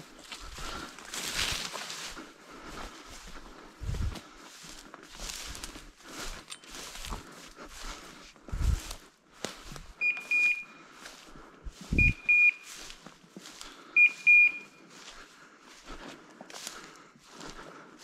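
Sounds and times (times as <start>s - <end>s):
footsteps rustling through dry brush: 0.0s - 18.0s
short high beeps: 10.0s - 10.8s, 11.9s - 12.7s, 14.0s - 14.8s.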